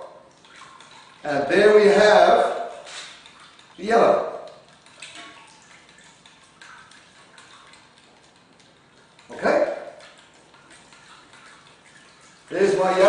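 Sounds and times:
light clicks and taps: 4.4 - 9.4.

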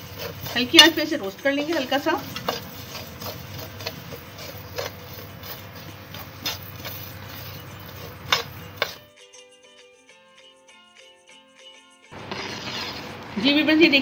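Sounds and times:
spoon stirring seeds in a pan: 0.0 - 9.1.

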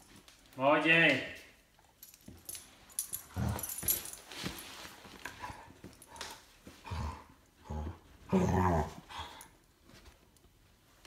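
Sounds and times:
puppy scuffling at a rug: 3.4 - 6.8.

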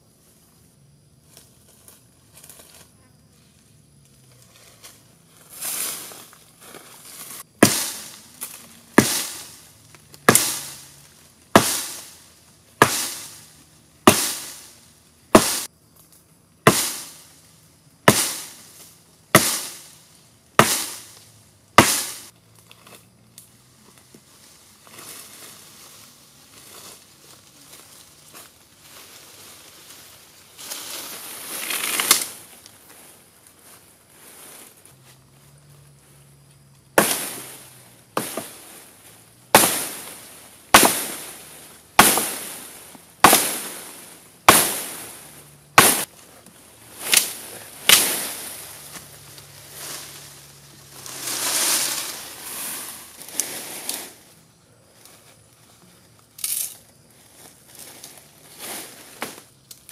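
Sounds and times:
leaves and branches rustling: 0.0 - 59.9
branch splitting crack: 7.6 - 10.9, 31.6 - 32.4, 39.5 - 41.2, 45.8 - 49.1
axe chopping sapling trunk: 7.6 - 12.2, 12.8 - 14.7, 15.3 - 15.7, 16.6 - 17.2, 18.0 - 18.6, 19.3 - 19.9, 20.6 - 22.3, 37.0 - 38.6, 39.5 - 46.1, 47.0 - 49.1.

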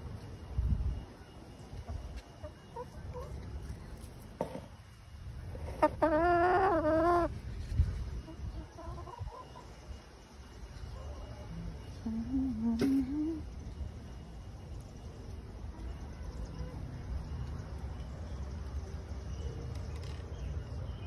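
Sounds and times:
chickens clucking softly: 1.8 - 4.8, 5.5 - 7.4, 8.2 - 9.9.

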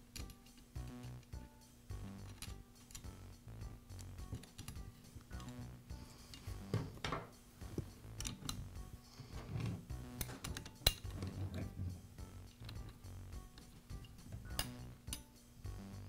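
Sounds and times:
metallic clicks and clinks: 0.0 - 0.7, 2.1 - 3.2, 3.9 - 6.7, 8.0 - 8.7, 10.0 - 11.8, 12.5 - 15.4.

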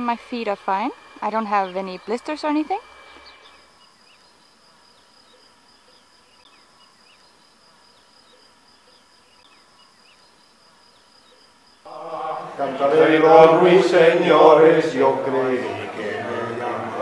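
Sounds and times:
faint chirps: 0.0 - 12.8
steady high-pitched whine: 0.0 - 17.0.

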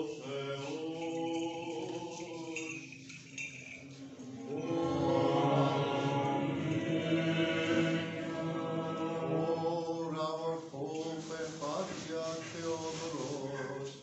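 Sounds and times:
liturgical chanting in held notes: 0.0 - 2.8, 4.0 - 14.0.

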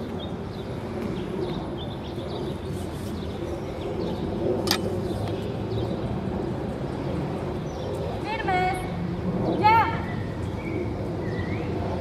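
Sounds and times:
sharp click: 4.6 - 4.9.

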